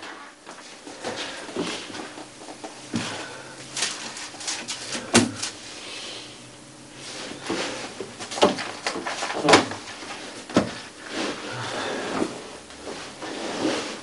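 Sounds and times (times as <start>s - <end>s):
pages rustling: 3.7s - 5.6s.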